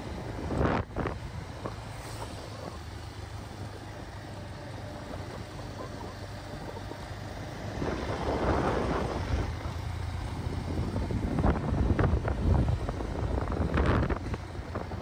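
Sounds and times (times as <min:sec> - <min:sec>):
wind rushing over microphone: 0:00.0 - 0:02.8, 0:07.6 - 0:15.0
motorcycle engine running: 0:00.0 - 0:15.0.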